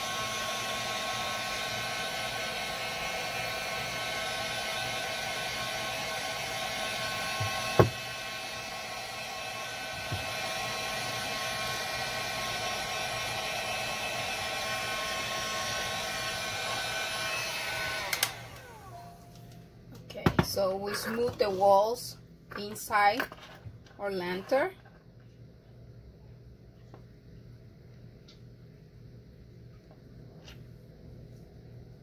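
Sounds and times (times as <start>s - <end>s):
heat gun blowing: 0.0s - 19.2s.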